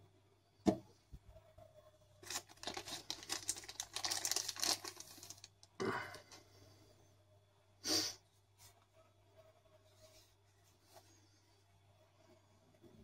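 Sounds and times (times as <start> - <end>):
plastic sleeve crinkling: 2.2 - 5.7.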